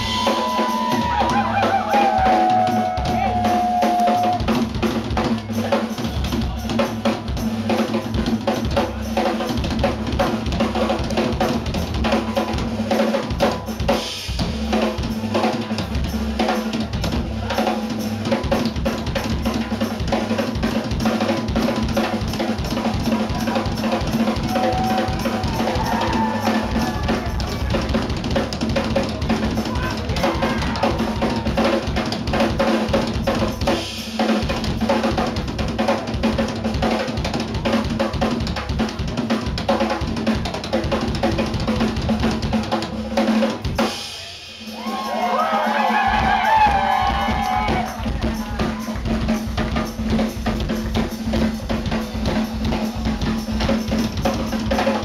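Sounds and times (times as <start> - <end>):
drum kit solo: 0.0 - 55.0.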